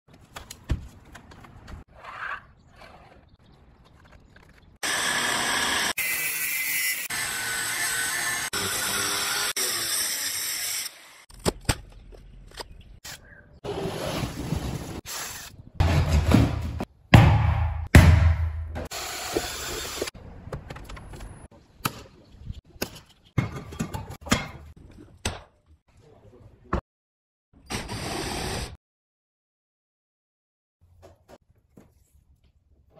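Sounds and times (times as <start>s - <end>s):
angle grinder cutting steel: 4.8s - 11.3s.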